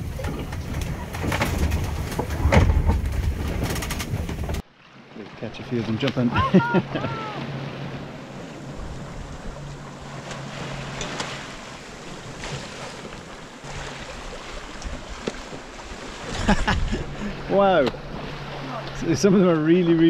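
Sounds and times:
wind over microphone: 0.0s - 4.6s, 14.1s - 19.1s
water rushing along a hull: 0.0s - 20.0s.

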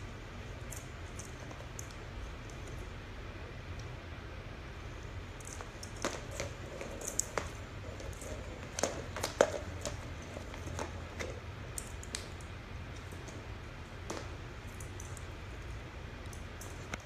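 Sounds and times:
ball toy rolling on hardwood floor: 5.4s - 15.7s.

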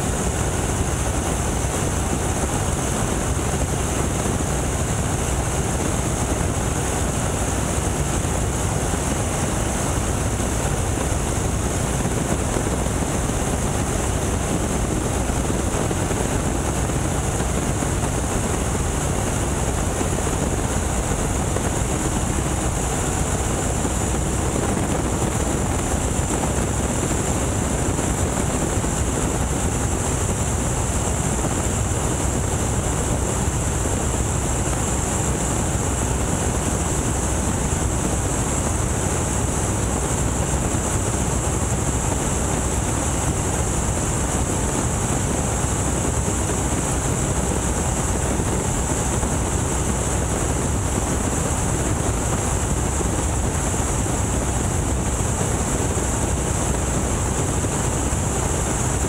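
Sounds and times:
airplane engine drone: 0.0s - 59.0s.

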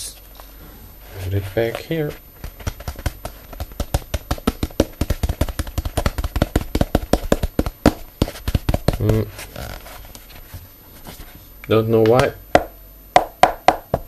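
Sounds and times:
fingers tapping light taps: 2.6s - 9.3s.

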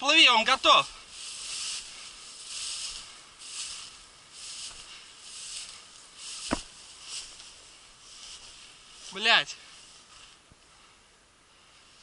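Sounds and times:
sharp knock: 6.4s - 6.7s.

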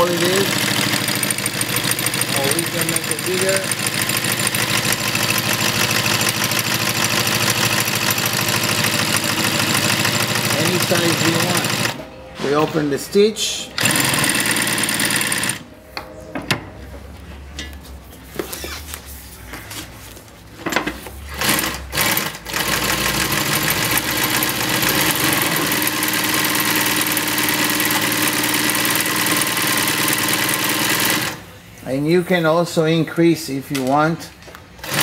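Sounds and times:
sewing machine stitching: 0.0s - 12.0s, 13.8s - 15.6s, 21.3s - 31.4s, 34.8s - 35.0s.

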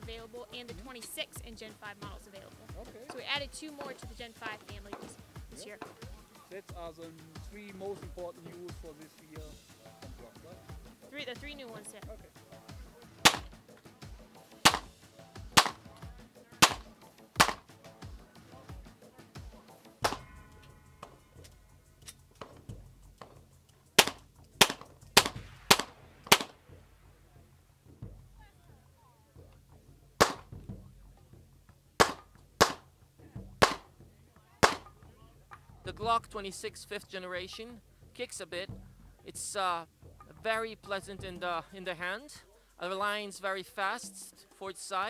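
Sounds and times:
pistol shots: 13.2s - 13.5s, 14.6s - 14.9s, 15.5s - 15.8s, 16.6s - 17.7s, 20.0s - 20.3s, 24.0s - 26.6s, 30.2s - 30.5s, 32.0s - 32.8s, 33.6s - 33.9s, 34.6s - 34.9s.

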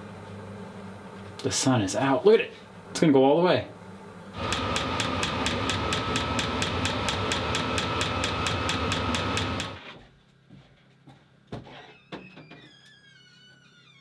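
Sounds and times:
blower motor whirring: 4.4s - 9.8s.

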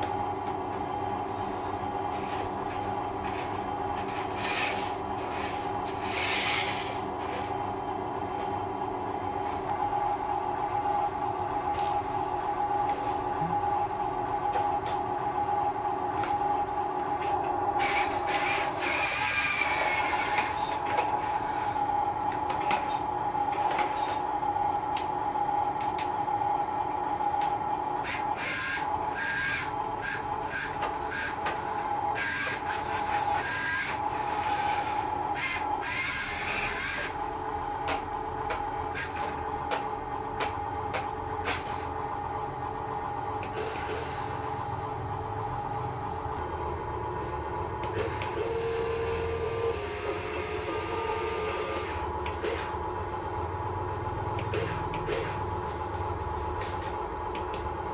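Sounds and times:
steady hum: 0.0s - 57.9s
toy truck electric motor whirring: 2.1s - 7.7s, 17.2s - 24.3s, 28.0s - 39.8s, 47.8s - 52.7s.

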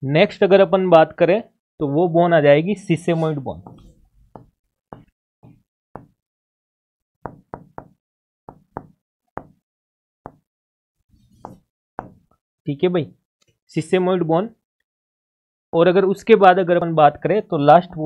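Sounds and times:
pen knocking on writing board: 3.6s - 6.2s, 7.2s - 9.6s, 10.2s - 10.5s, 11.4s - 12.3s.

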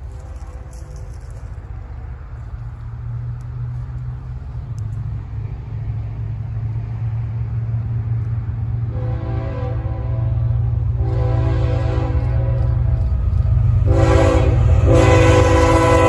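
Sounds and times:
diesel locomotive engine rumble: 0.0s - 16.0s
locomotive horn chord: 8.8s - 16.0s.

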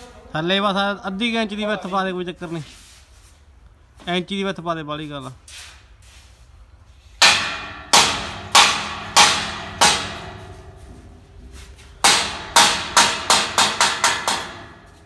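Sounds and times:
hammer striking steel grill: 7.2s - 15.0s.

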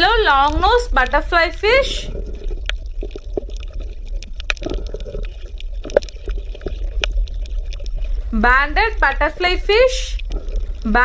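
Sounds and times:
low steady hum: 0.0s - 11.0s
water bubbling and gurgling: 0.0s - 11.0s
small pops and clicks: 2.6s - 8.1s.

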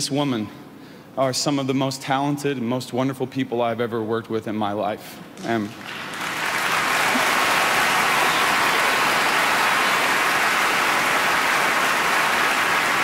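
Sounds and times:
audience applauding: 5.5s - 13.0s.

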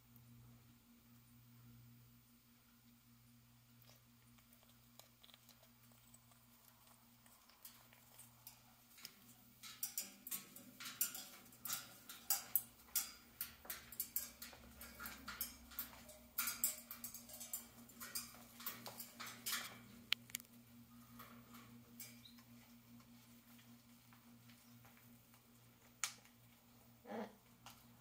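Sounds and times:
parrot chewing on toy: 3.8s - 21.8s.

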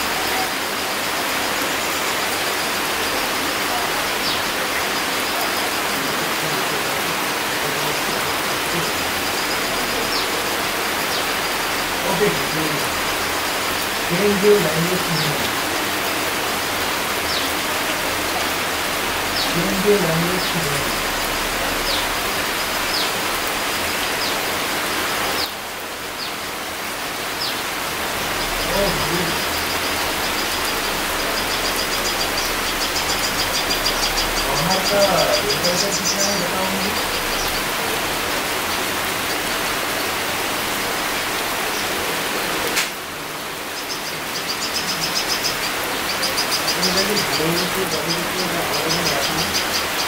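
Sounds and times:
rain pattering on foliage: 0.0s - 50.0s
high falling chirp: 27.3s - 39.4s
single click: 42.7s - 43.0s.

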